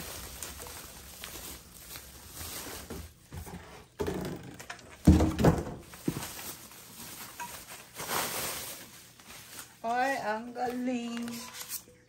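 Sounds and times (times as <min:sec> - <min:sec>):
bubble wrap rustling: 0:00.0 - 0:12.0
knocks and thumps: 0:03.3 - 0:06.3.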